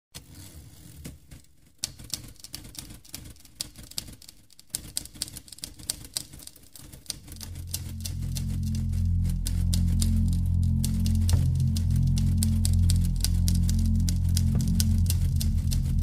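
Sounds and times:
typewriter keys clacking: 0:01.8 - 0:08.6
low bass music: 0:07.3 - 0:16.0.

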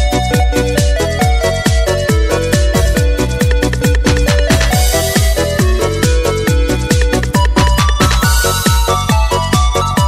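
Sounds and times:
electronic dance music: 0:00.8 - 0:10.0
heavy kick drum: 0:00.9 - 0:09.3
synth melody: 0:02.2 - 0:09.7.

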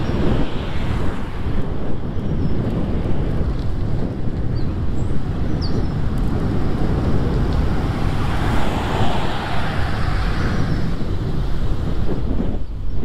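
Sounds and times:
wind buffeting microphone: 0:00.0 - 0:13.0
car passing: 0:06.0 - 0:12.4.

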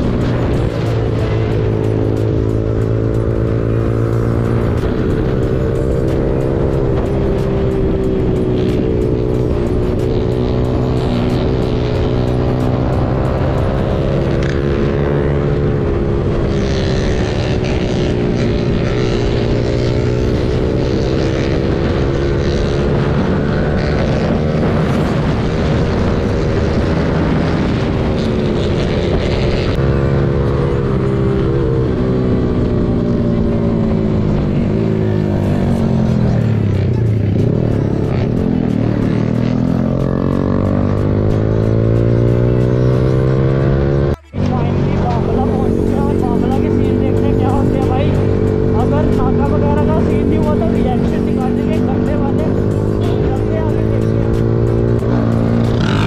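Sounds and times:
motorcycle engine at high revs: 0:00.0 - 0:56.0
wind rush: 0:21.1 - 0:30.0.

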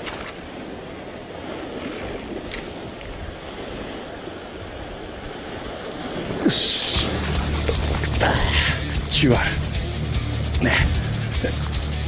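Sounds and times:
surf washing against rocks: 0:00.0 - 0:09.6.

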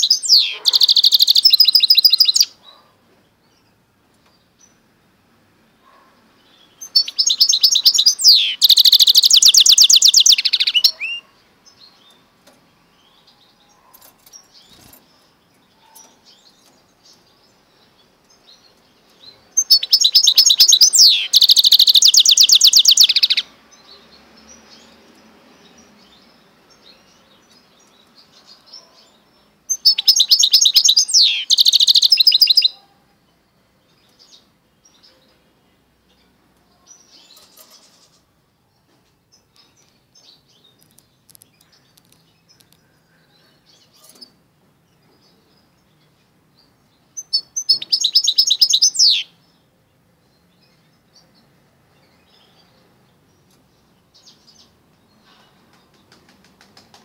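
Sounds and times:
finch singing trills: 0:00.0 - 0:02.6, 0:06.6 - 0:11.3, 0:19.5 - 0:23.5, 0:29.7 - 0:32.8, 0:47.1 - 0:49.4
soft bird chips: 0:40.7 - 0:42.9.

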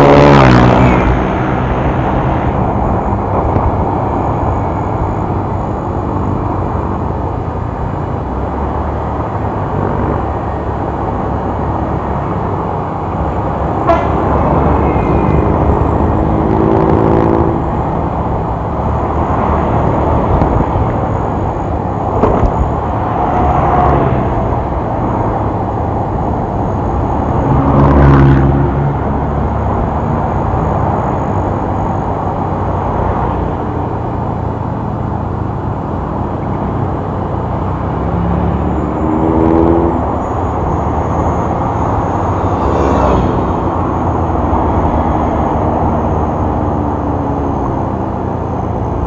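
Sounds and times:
motorcycle engine and road noise: 0:00.0 - 0:49.0
wind rumble: 0:00.0 - 0:49.0
vehicle horn toots: 0:13.8 - 0:15.3.

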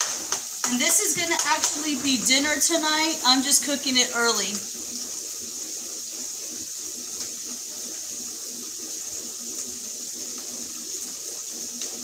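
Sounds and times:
meat sizzling in a pan: 0:00.0 - 0:12.0.

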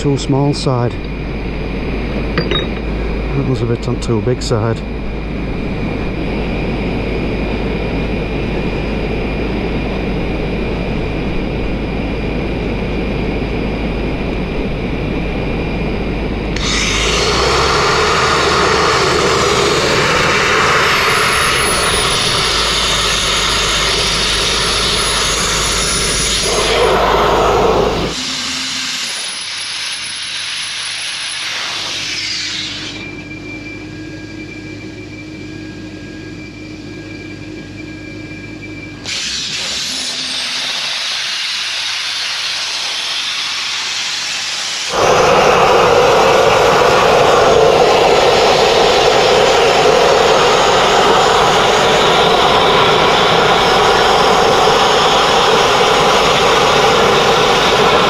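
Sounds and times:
sandblasting hissing roar: 0:16.6 - 0:33.0, 0:39.0 - 0:58.0.

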